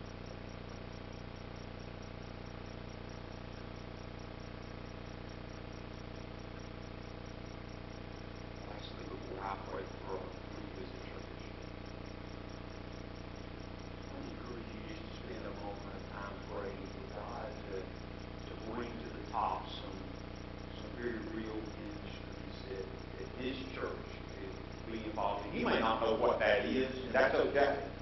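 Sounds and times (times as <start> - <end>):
electrical hum: 0.0 - 28.0
faint murmured words: 8.6 - 11.7, 14.1 - 28.0.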